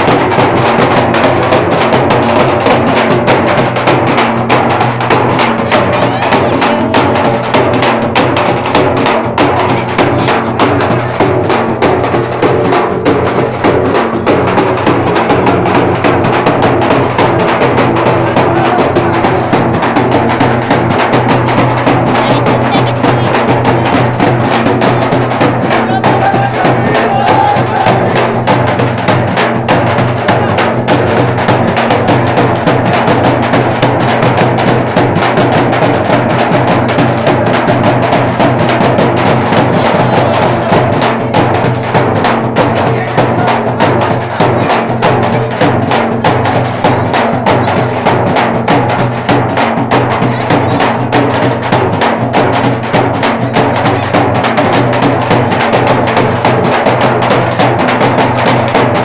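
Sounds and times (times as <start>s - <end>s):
drums playing fast beat: 0.0s - 59.0s
crowd voices: 5.2s - 23.6s, 24.2s - 29.3s, 39.0s - 56.8s.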